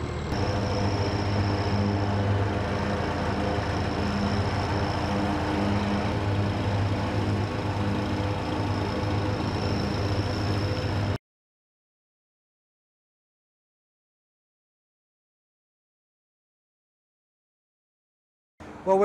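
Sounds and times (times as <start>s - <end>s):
high-pitched whine: 0.0s - 11.2s
low throbbing engine hum: 0.0s - 11.2s.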